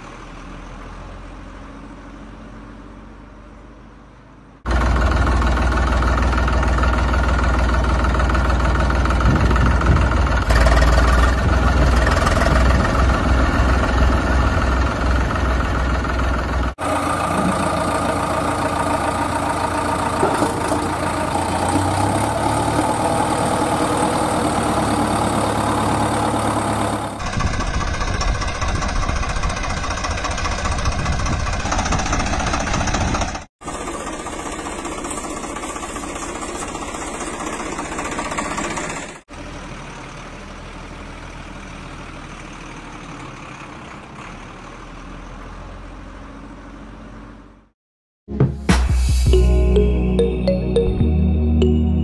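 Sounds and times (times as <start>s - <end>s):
engine idling: 4.6s - 44.3s.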